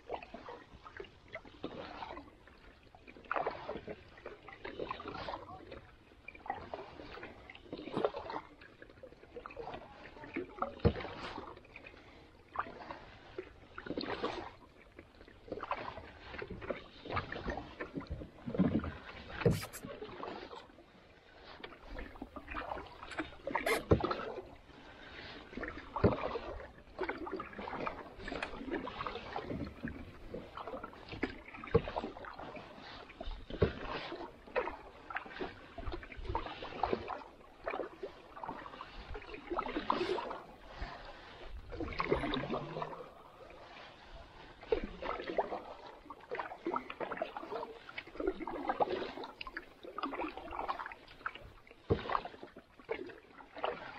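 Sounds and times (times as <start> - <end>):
paddle splashing through water: 0.0 - 53.9.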